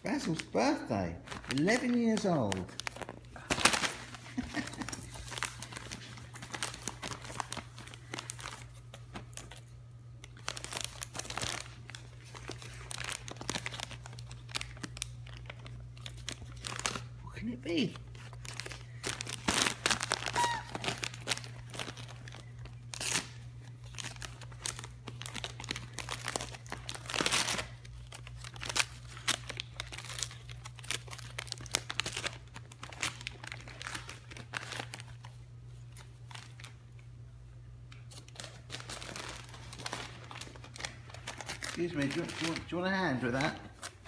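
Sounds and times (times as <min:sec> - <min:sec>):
wrapping paper crinkling and ripping: 0:00.0 - 0:37.1, 0:37.9 - 0:44.0.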